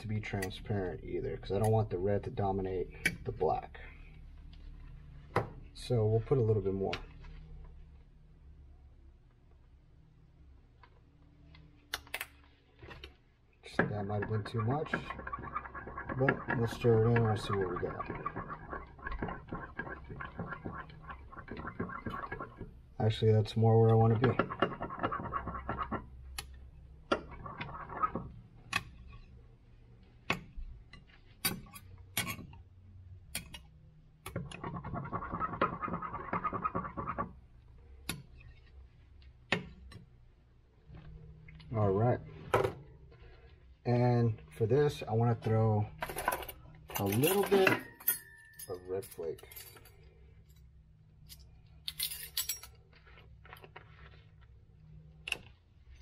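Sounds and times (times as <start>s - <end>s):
low steady hum: 0.0s - 56.0s
tool scraping inside cup: 14.0s - 22.7s, 23.9s - 26.1s, 34.5s - 37.4s
jars clinking and rattling: 46.0s - 50.1s.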